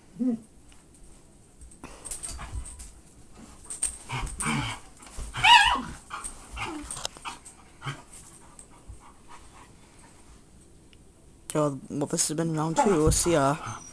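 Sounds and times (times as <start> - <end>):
dogs scuffling: 0.9 - 9.6, 12.6 - 13.9
dog yelping: 5.3 - 6.0, 12.8 - 13.9
dog whimpering: 5.4 - 6.0, 12.7 - 13.9.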